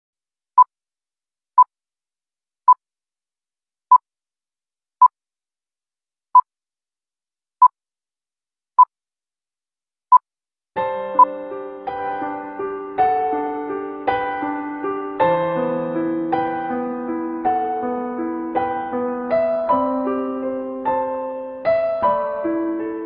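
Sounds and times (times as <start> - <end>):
piano music: 10.8 - 23.0.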